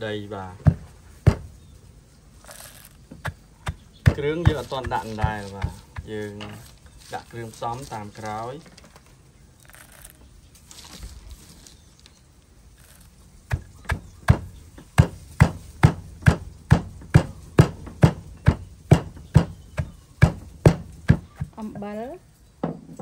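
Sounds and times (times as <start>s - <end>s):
pestle pounding in wooden mortar: 0.6s - 1.6s, 2.5s - 7.9s, 12.9s - 21.6s.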